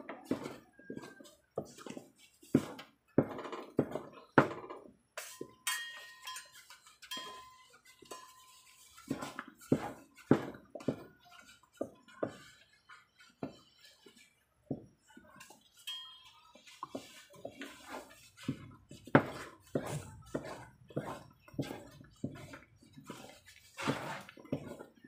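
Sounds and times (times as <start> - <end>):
cookware and utensils clinking: 0.0 - 25.0.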